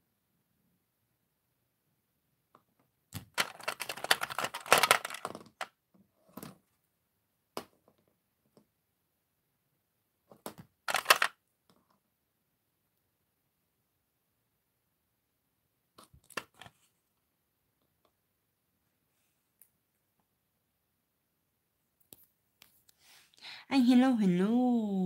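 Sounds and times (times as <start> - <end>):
plastic toy figures rattling: 3.2 - 5.7, 10.9 - 11.4.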